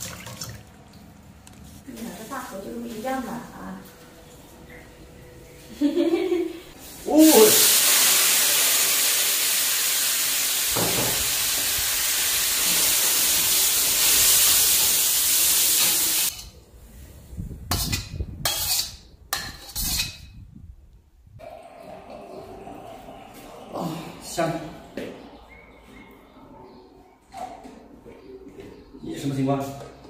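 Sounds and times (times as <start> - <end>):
meat sizzling in a wok: 7.0 - 16.4
metal spatula scraping and knocking: 17.7 - 20.3.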